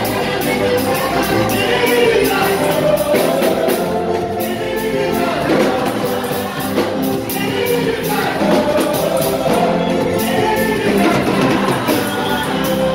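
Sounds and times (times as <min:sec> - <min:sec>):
quick percussion beat: 0:00.0 - 0:12.9
voices singing gospel: 0:00.0 - 0:12.9.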